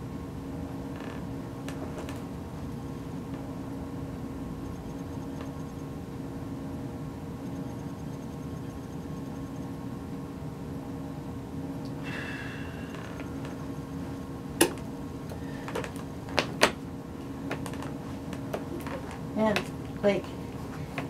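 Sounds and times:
steady low room hum: 0.0 - 21.0
wheelchair clicks and knocks: 17.5 - 19.7.

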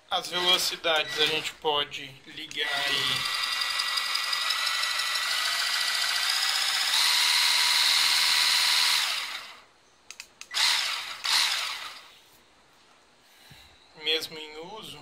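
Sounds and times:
hand blender motor whine: 2.6 - 9.6, 10.6 - 12.1
clicks: 10.1 - 10.6.

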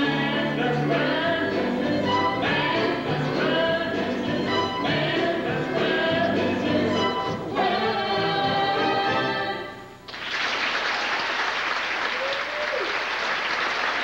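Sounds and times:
singers and band holding chord: 0.0 - 9.8
audience applause: 10.1 - 14.0.

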